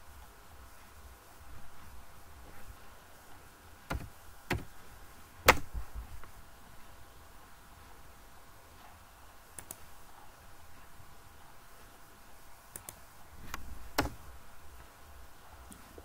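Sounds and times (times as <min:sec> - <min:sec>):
faint steady hum: 0:00.0 - 0:16.0
computer mouse clicks: 0:09.6 - 0:09.9, 0:12.7 - 0:14.2.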